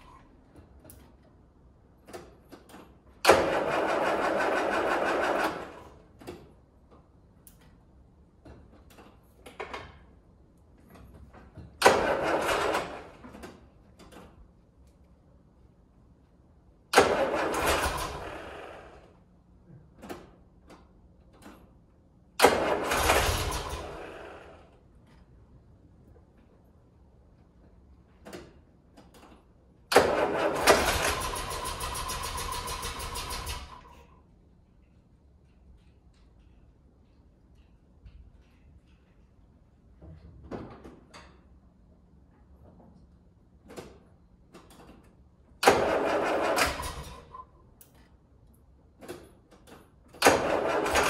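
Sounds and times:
car engine starting: 3.2s - 6.0s, 11.8s - 13.3s, 16.9s - 19.1s, 22.4s - 24.7s, 29.9s - 34.0s, 45.6s - 47.4s, 50.2s - 51.0s.

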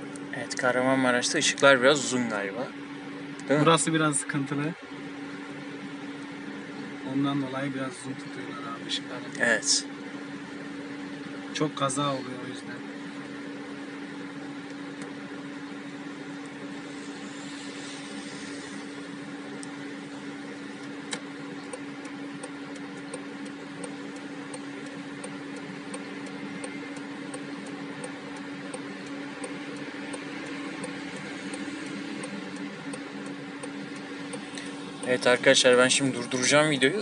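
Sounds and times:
car engine idling: 5.1s - 37.0s
light regular ticking: 16.3s - 37.0s.

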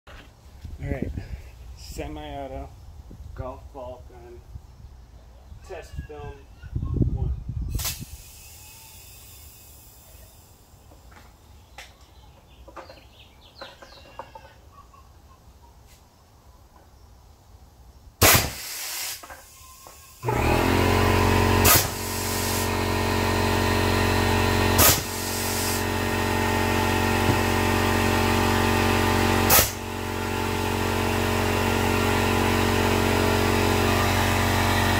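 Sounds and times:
air gun firing pops: 7.7s - 8.3s, 18.2s - 19.4s, 21.6s - 22.6s, 24.8s - 25.8s, 29.5s - 29.8s
hiss of escaping air: 7.7s - 10.5s, 18.2s - 20.2s
motor humming: 20.2s - 34.9s.

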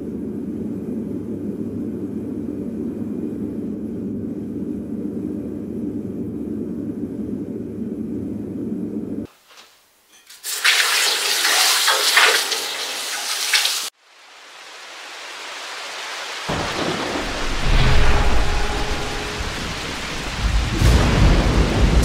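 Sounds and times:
rain: 9.5s - 22.0s
hot metal hissing in water: 10.1s - 16.6s
deep thunder rumbling: 16.5s - 22.0s.

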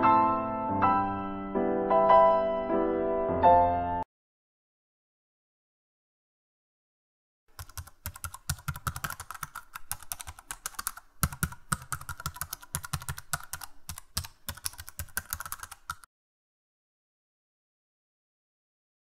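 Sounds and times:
keyboard keys clicking: 7.5s - 16.1s.

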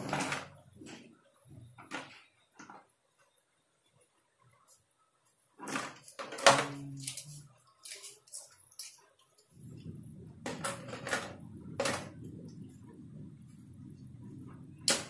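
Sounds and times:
low rustling rumble: 9.5s - 14.9s.

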